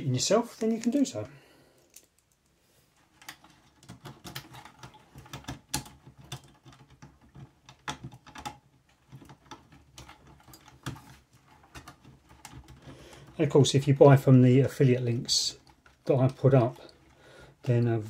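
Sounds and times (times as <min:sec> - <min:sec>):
plug and cable clicking and rattling: 0:01.8 - 0:13.5.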